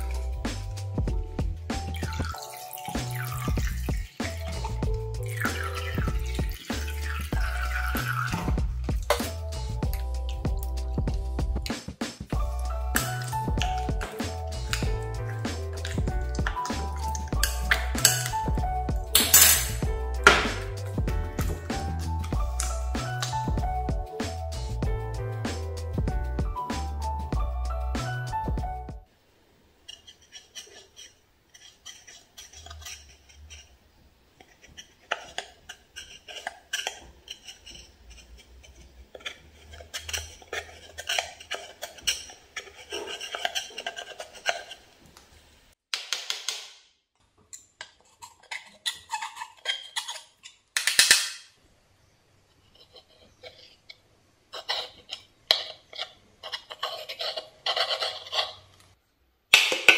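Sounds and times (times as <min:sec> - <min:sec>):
knife scraping eyeshadow: 0:29.9 - 0:33.8, 0:34.4 - 0:44.9, 0:47.8 - 0:50.6, 0:52.7 - 0:58.8.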